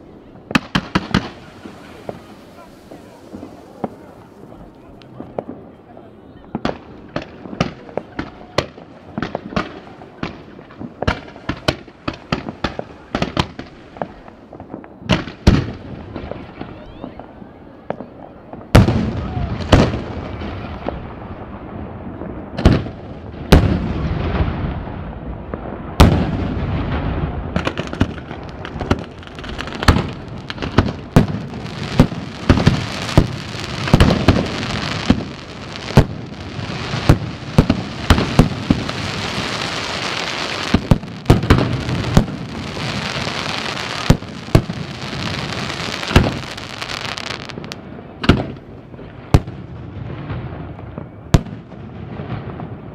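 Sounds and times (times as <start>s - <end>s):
firework crackling hiss: 0.0s - 5.8s, 25.0s - 47.8s
firework shells bursting: 27.6s - 48.7s.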